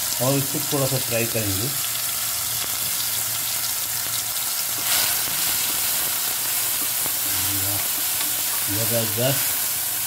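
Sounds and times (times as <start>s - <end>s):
vegetables sizzling in a pan: 0.0s - 10.0s.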